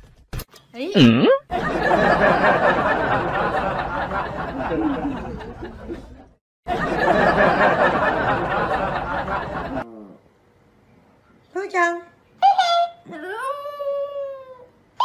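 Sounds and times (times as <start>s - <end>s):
people laughing and chattering: 1.5s - 9.9s.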